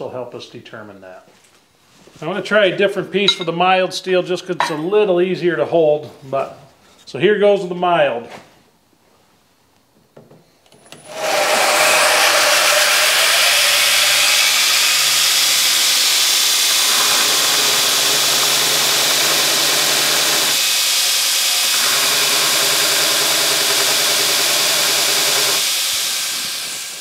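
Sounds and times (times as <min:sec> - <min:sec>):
belt grinder grinding steel: 0:10.9 - 0:27.0.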